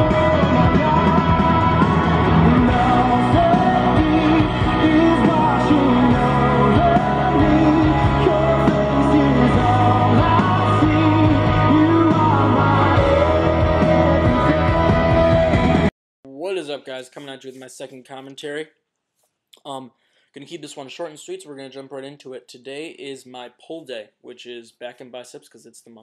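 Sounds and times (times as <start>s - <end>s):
rock song with singing: 0.0s - 15.9s.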